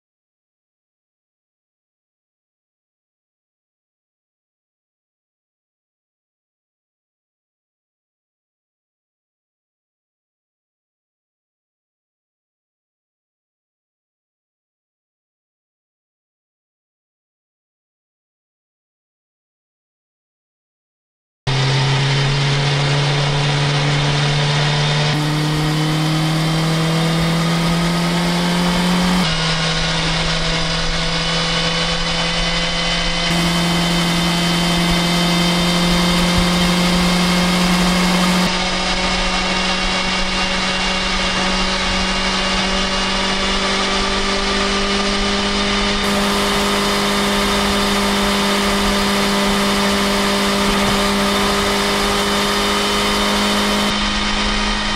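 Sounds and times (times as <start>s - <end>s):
motorcycle engine cruising: 21.5s - 54.9s.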